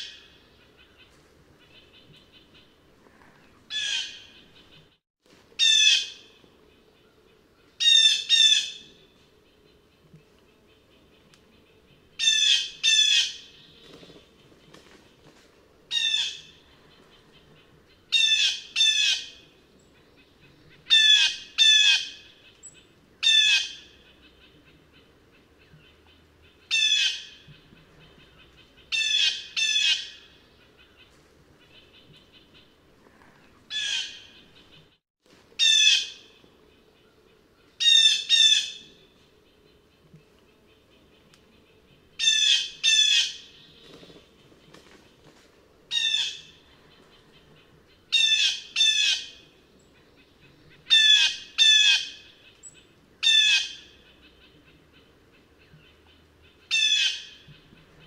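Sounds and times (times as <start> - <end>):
blue jay calling: 3.7 - 4.4, 26.7 - 31.0, 47.2 - 49.4, 50.2 - 54.6, 55.8 - 57.5.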